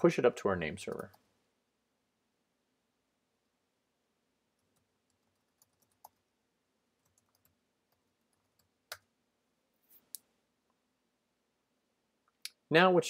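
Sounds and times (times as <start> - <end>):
keyboard typing: 0.9 - 1.2, 4.6 - 6.2, 7.0 - 9.1.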